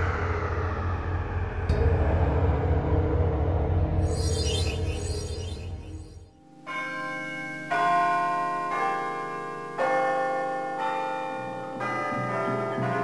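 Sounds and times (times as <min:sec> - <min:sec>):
ringing chimes: 0:04.1 - 0:07.7.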